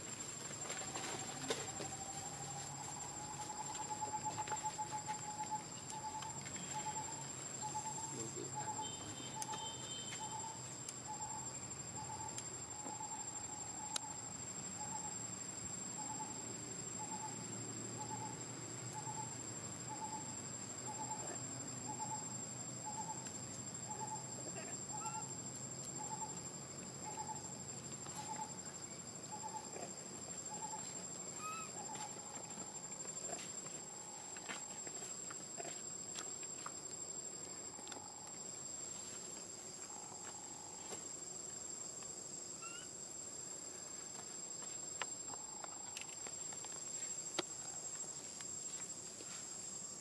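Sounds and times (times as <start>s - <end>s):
bird hooting call: 24.9s - 25.3s, 31.4s - 32.0s.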